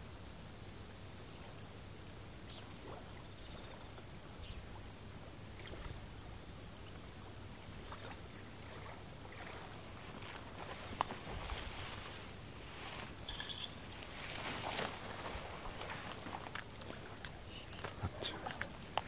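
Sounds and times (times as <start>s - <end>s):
steady hiss: 0.0s - 19.0s
soft rustles and ticks: 10.0s - 19.0s.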